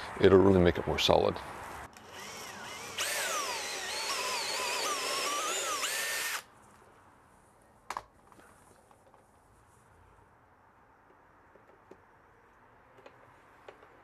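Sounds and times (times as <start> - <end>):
cordless drill whine: 2.0 - 6.5.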